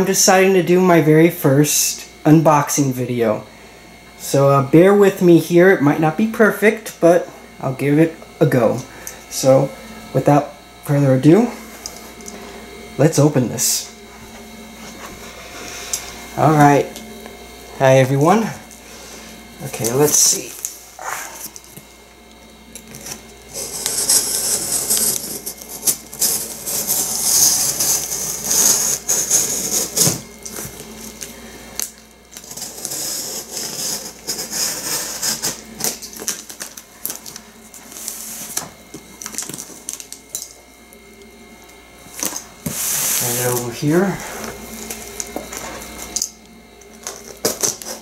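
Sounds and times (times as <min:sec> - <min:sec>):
box cutter scraping tape: 0:22.9 - 0:30.7, 0:32.3 - 0:36.8, 0:47.1 - 0:48.0.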